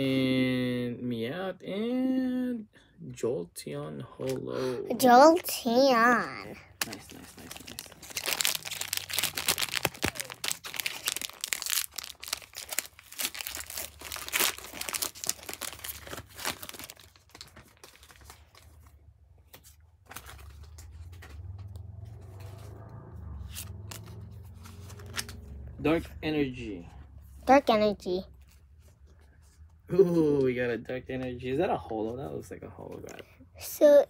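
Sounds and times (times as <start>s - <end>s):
foil wrapper tearing and crinkling: 6.8s - 18.6s.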